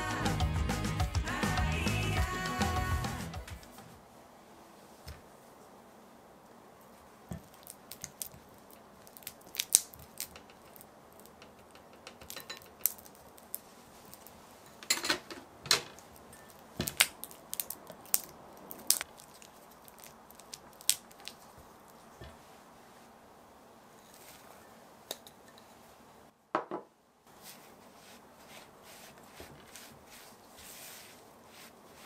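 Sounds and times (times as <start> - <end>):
utensils tapping and clicking: 10.2 - 13.2.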